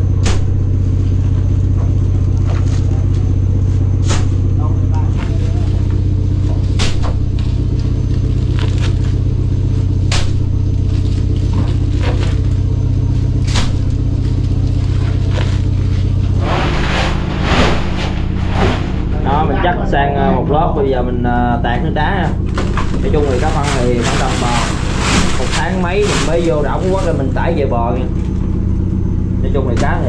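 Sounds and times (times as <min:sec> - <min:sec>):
boat engine drone: 0:00.0 - 0:30.0
knocks and scrapes: 0:09.8 - 0:19.4, 0:22.4 - 0:27.2
crushed ice pouring: 0:23.4 - 0:26.5.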